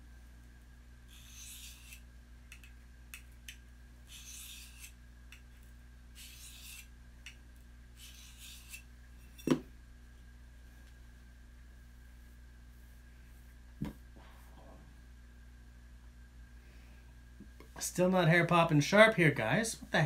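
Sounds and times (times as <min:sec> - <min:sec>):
knife rasping on sharpener: 0:01.1 - 0:03.2, 0:04.1 - 0:05.4, 0:06.2 - 0:07.4, 0:08.0 - 0:09.4.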